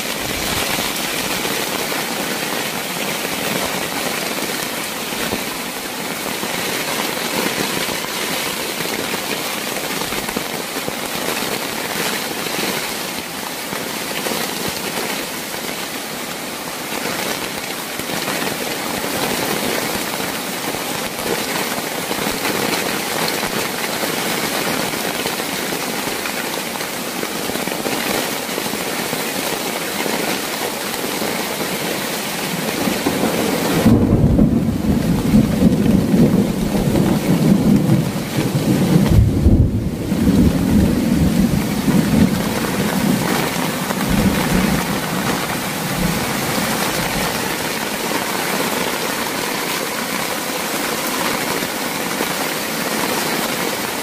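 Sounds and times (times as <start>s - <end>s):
heavy rain: 0.0s - 54.0s
deep rumble of thunder: 33.8s - 47.2s.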